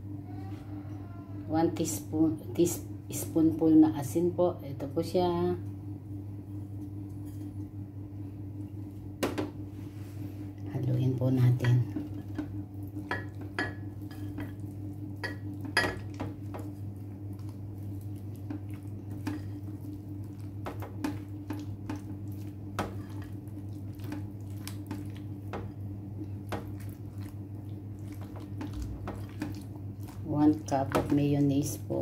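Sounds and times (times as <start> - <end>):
steady low hum: 0.0 - 32.0
wet squishing stirring: 11.4 - 32.0.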